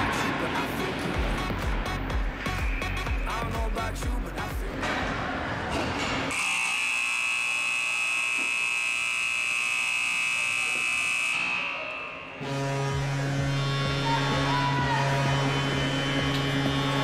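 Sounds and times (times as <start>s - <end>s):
arena buzzer: 6.3s - 17.0s.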